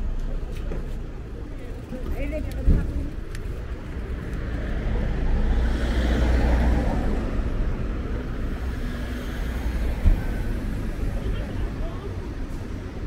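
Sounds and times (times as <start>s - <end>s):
city traffic rumble: 0.0s - 13.0s
vehicle passing by: 4.0s - 11.8s.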